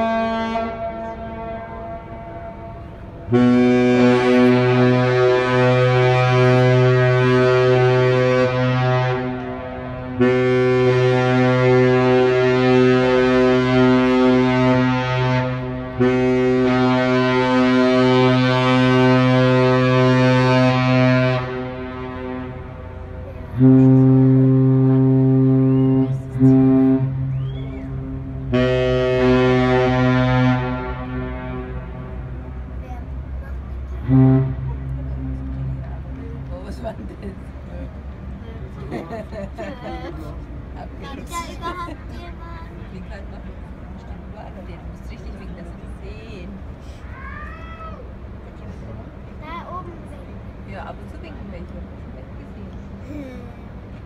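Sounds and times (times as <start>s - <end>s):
ship horn blasts: 0.0s - 47.1s.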